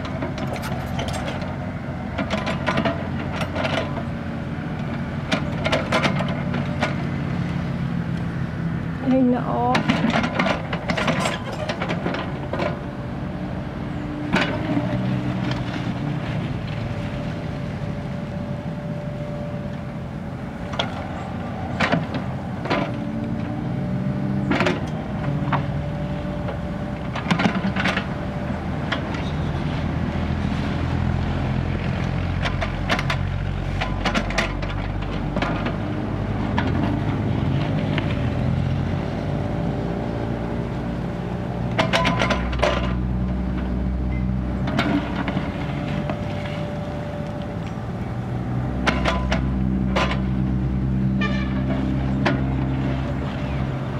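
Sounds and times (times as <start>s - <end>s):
steel bucket clanking and scraping: 0.0s - 1.6s, 9.8s - 12.8s
diesel engine running under load: 0.0s - 53.9s.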